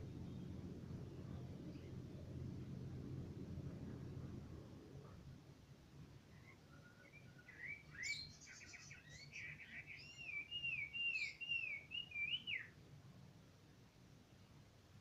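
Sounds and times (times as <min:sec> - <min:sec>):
bird singing whistled notes: 0:06.3 - 0:12.8.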